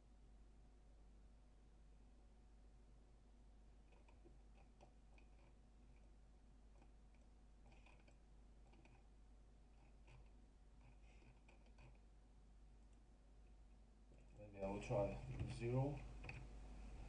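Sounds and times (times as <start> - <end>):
low steady hum: 0.0 - 17.0
computer mouse clicks: 3.8 - 6.1, 6.7 - 9.1, 9.7 - 12.0.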